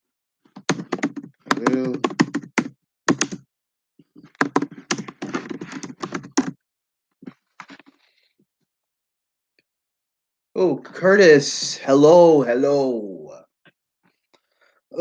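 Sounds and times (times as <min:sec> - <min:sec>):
keyboard typing: 0:00.6 - 0:03.4, 0:04.2 - 0:06.6.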